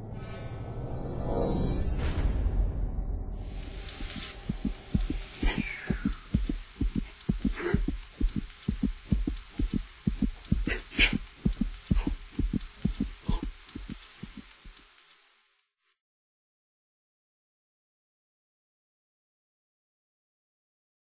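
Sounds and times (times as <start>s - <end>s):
heartbeat thumps: 3.4s - 14.8s.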